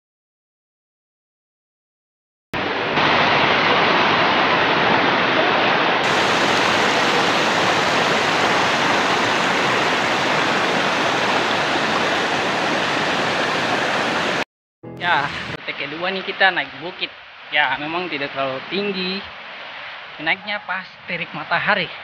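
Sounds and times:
river rushing over stones: 2.6 - 14.4.

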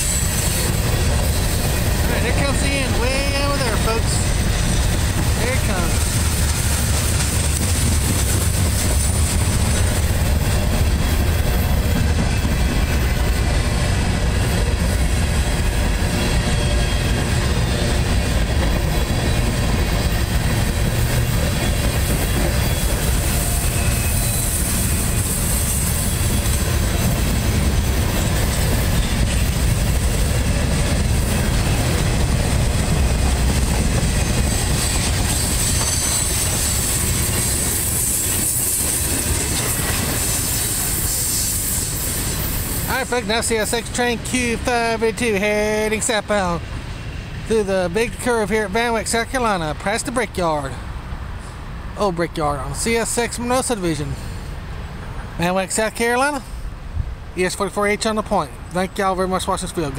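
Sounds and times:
high wheel squeal: 0.0 - 6.4, 15.5 - 20.5, 21.1 - 29.5, 33.8 - 43.2
train wheels rumbling on rail: 0.0 - 59.9.

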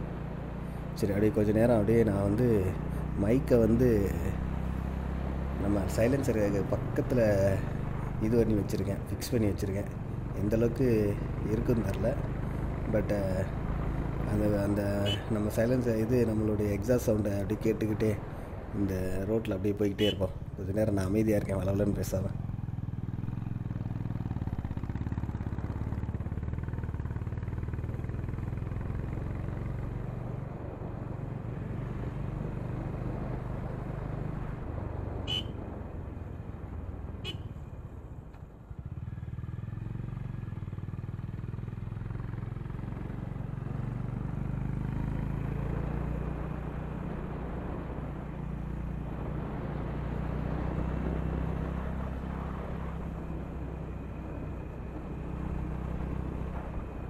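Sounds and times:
horn beeping: 35.3 - 35.6.

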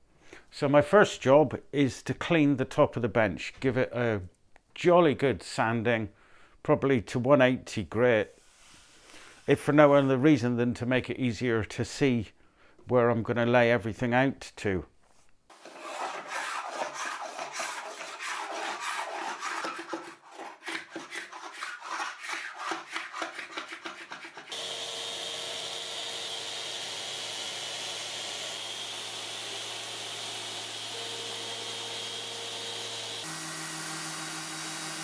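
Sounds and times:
hand sanding wood: 15.5 - 24.6
orbital sander running on wood: 24.5 - 35.0.

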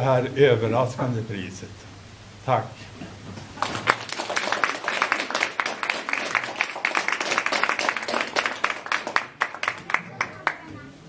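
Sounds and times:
audience clapping: 3.6 - 10.8.

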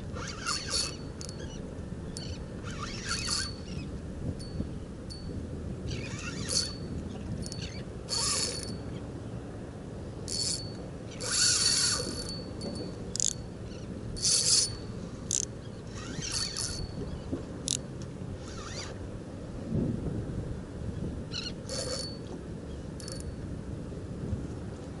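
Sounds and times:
fishing reel buzzing: 0.0 - 4.5, 5.9 - 8.8, 10.2 - 12.5, 13.1 - 17.8, 18.4 - 19.0, 21.3 - 22.2, 23.0 - 23.3.

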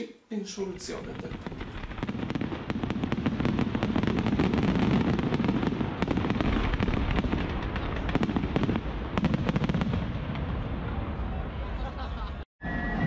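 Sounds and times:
fireworks crackling pops: 0.8 - 10.5.

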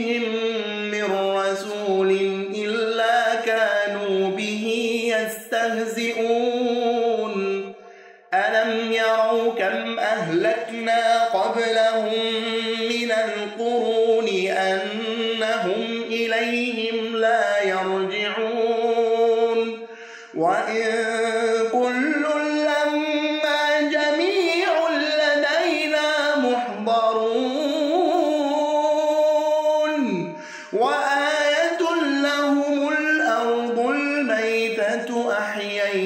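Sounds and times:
man reciting melodically: 0.0 - 36.0
short breaths: 7.7 - 8.3, 19.8 - 20.4, 30.3 - 30.8.

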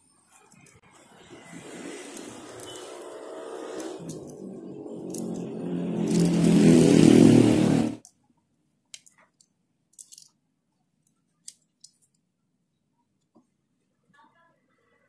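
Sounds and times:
scissors snipping foam: 1.8 - 6.6.

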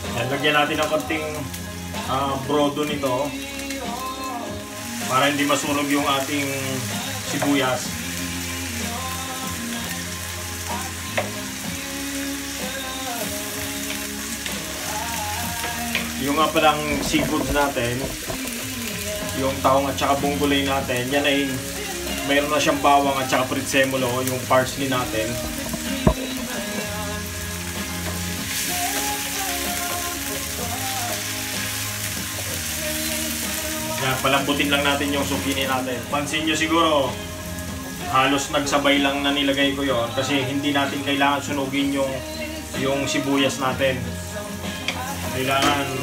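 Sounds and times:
background music: 0.0 - 46.0
vegetables sizzling in a frying pan: 0.0 - 46.0
spatula stirring in pan: 10.9 - 20.1, 25.0 - 33.8
wooden spoon stirring: 15.5 - 19.8, 24.3 - 27.0.

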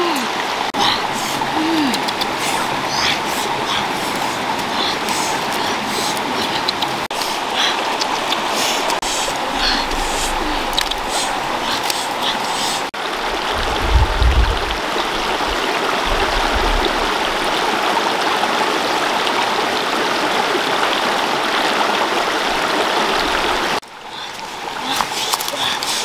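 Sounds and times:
stream rushing over stones: 0.0 - 26.0
low rumbles: 9.0 - 17.8.

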